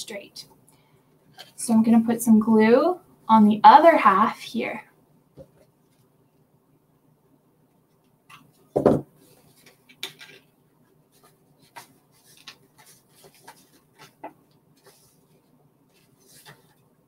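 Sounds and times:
paper rustling: 0:08.3 - 0:17.0.

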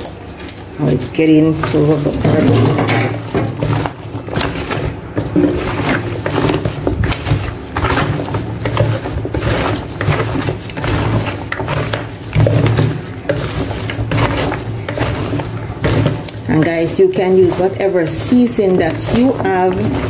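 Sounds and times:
wet squelching of meat: 0:00.0 - 0:20.0.

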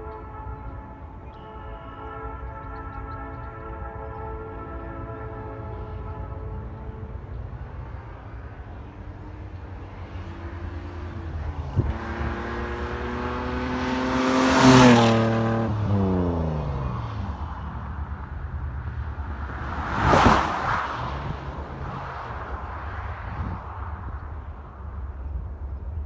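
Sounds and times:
car engine accelerating past: 0:10.0 - 0:17.9, 0:19.3 - 0:23.7.

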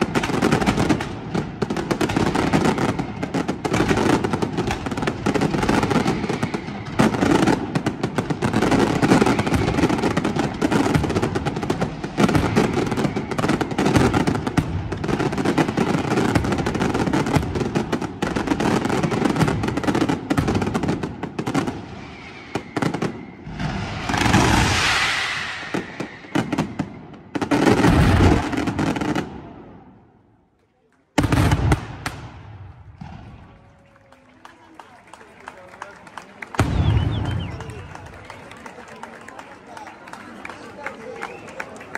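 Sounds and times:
fireworks bangs and crackling: 0:00.0 - 0:30.3, 0:31.1 - 0:40.4.

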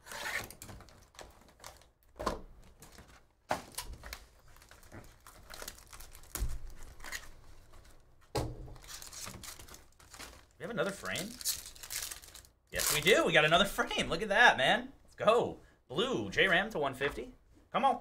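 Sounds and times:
plastic wrapping crinkling: 0:00.0 - 0:08.1, 0:08.7 - 0:13.5.

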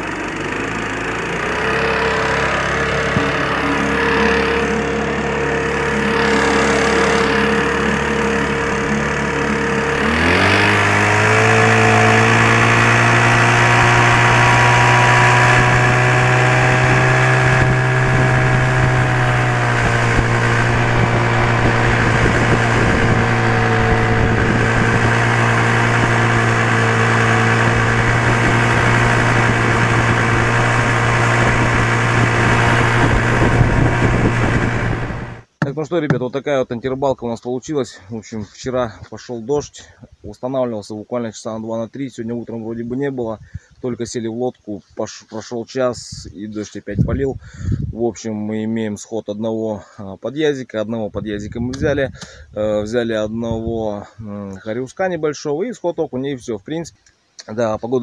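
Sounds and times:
two-stroke outboard motor running: 0:00.0 - 0:35.5.

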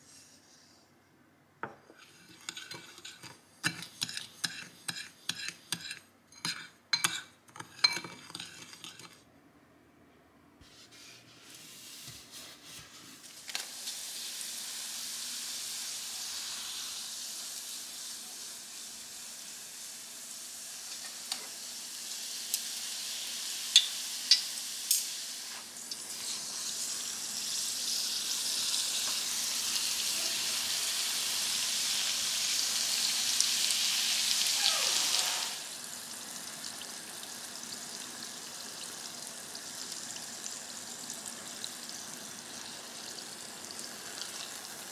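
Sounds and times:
dough sizzling in hot oil: 0:10.9 - 0:44.9.

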